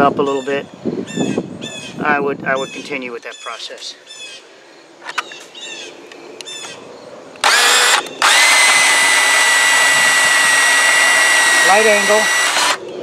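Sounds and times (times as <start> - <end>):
band saw cutting steel: 7.4 - 12.8.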